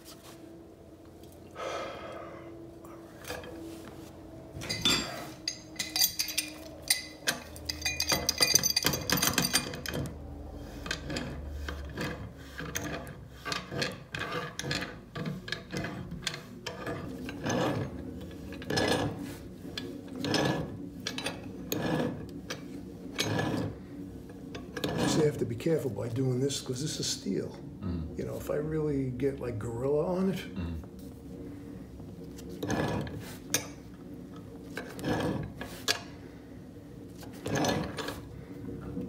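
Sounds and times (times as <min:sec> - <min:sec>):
pipe wrench clicking and scraping: 0:04.6 - 0:25.3, 0:32.3 - 0:36.1.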